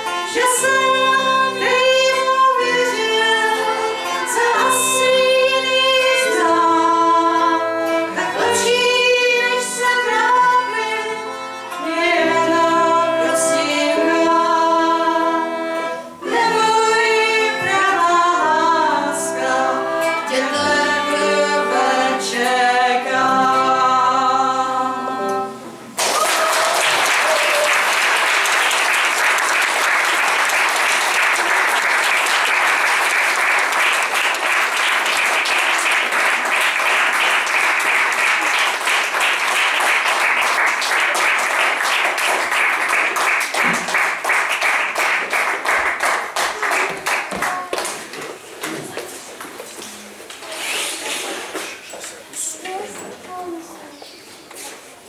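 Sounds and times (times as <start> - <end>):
violin: 0.0 - 25.8
acoustic guitar: 0.0 - 26.0
woman singing: 0.1 - 15.6, 16.2 - 25.5
audience applause: 26.0 - 48.1.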